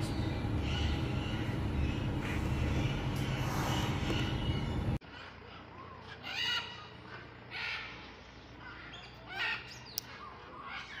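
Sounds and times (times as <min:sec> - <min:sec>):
parrot squawking: 0:00.6 - 0:07.9.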